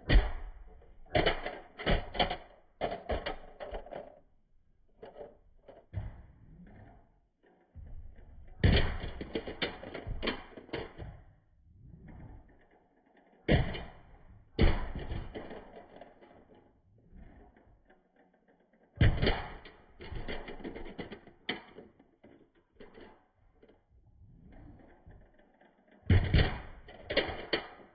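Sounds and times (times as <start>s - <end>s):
toy cars clacking and rattling: 1.1s - 4.3s, 4.9s - 5.9s, 8.6s - 11.1s, 14.8s - 16.7s, 17.5s - 23.9s, 24.7s - 27.9s.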